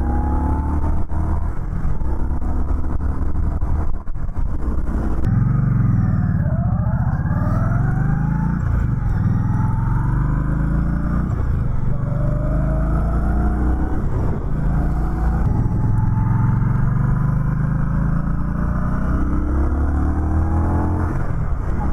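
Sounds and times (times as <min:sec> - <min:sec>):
motorcycle engine accelerating: 0:00.0 - 0:21.9.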